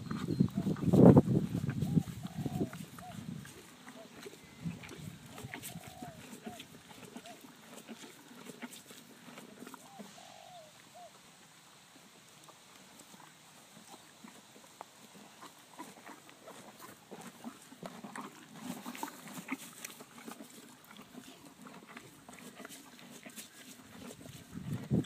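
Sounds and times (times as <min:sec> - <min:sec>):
horse chewing hay: 0:00.0 - 0:10.6, 0:12.4 - 0:25.0.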